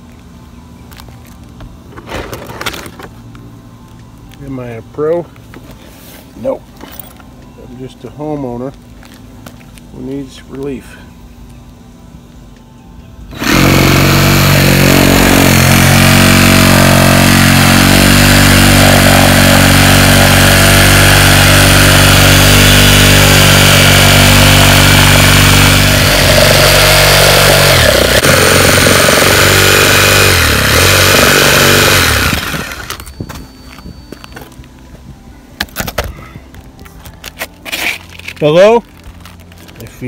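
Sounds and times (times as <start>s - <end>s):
reciprocating saw cutting shingles: 13.3s - 33.0s.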